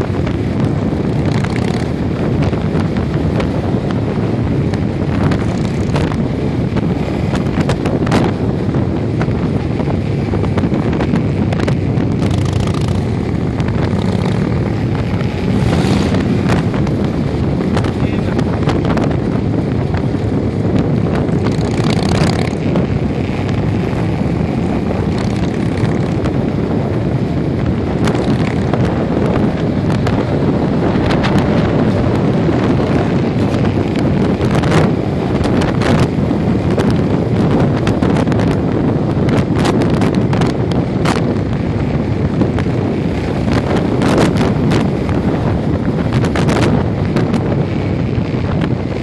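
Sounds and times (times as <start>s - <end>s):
motorcycle engine: 0.0s - 49.0s
road noise: 0.0s - 49.0s
wind buffeting microphone: 0.0s - 49.0s.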